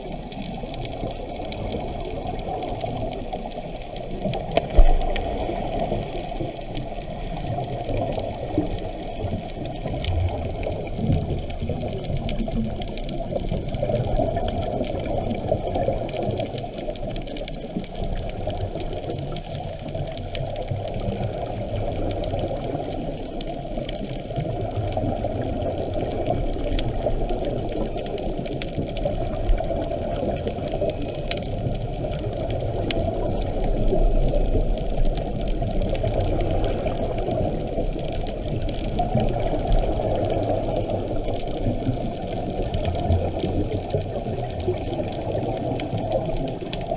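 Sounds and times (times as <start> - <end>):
underwater regulator bubbling: 7.2 - 12.6, 13.3 - 16.8.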